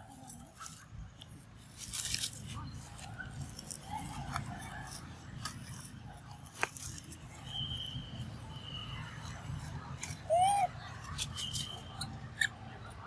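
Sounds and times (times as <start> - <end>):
dry leaves crackling and rustling: 0.0 - 12.2
high steady whistle: 7.4 - 9.1.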